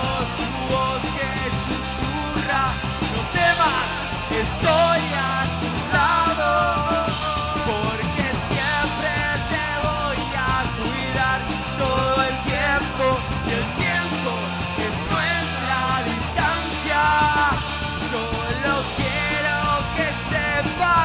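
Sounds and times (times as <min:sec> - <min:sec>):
drum kit with cymbals: 0:00.0 - 0:21.0
electric bass: 0:00.0 - 0:21.0
electric guitar: 0:00.0 - 0:21.0
person singing: 0:00.0 - 0:21.0.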